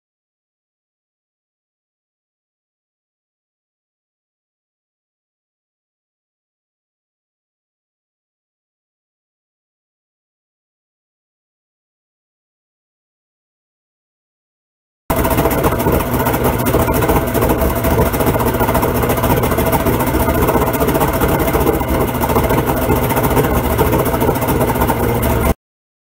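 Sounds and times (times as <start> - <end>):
outboard motor running: 15.1 - 25.6
water churning and splashing: 15.1 - 25.6.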